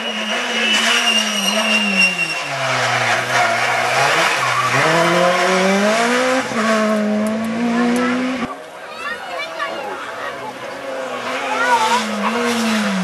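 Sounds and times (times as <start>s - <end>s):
thin high squeal: 0.0s - 3.8s
rally car engine passing: 0.0s - 8.7s, 10.4s - 13.0s.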